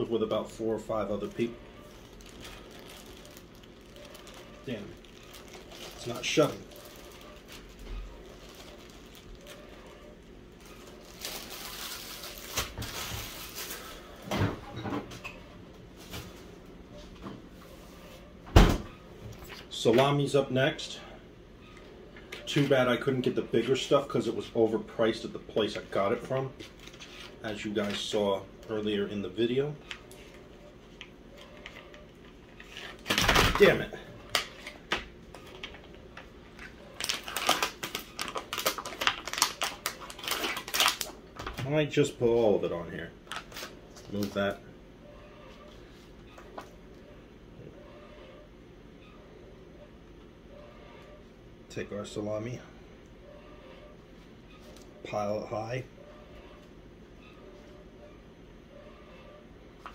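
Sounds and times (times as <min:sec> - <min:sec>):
plastic packaging crinkling: 0:01.0 - 0:14.2, 0:31.6 - 0:41.7, 0:43.2 - 0:44.4.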